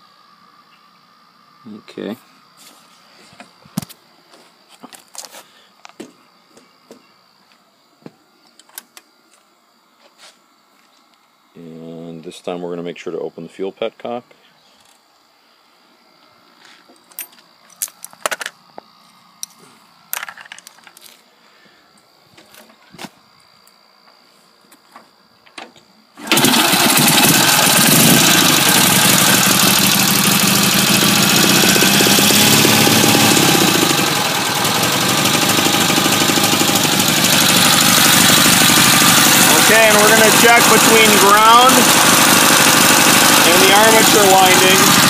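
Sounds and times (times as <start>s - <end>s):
motorcycle engine idling: 26.3s - 45.0s.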